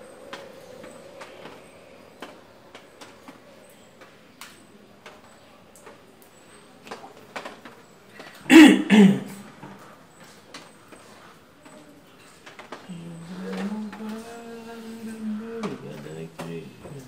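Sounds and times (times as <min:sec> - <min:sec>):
man coughing: 0:08.5 - 0:09.4.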